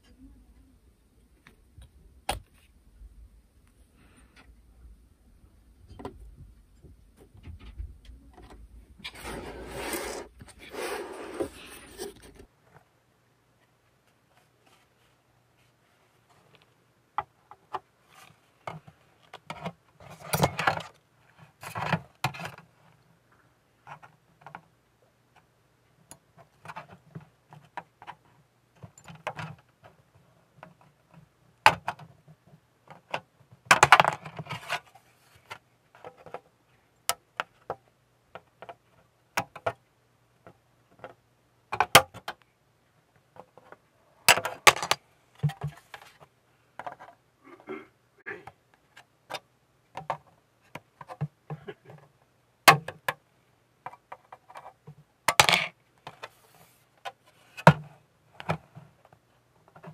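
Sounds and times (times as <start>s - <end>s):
plastic parts clicking and clattering: 18.6s - 21.0s, 30.6s - 36.5s, 43.3s - 47.2s.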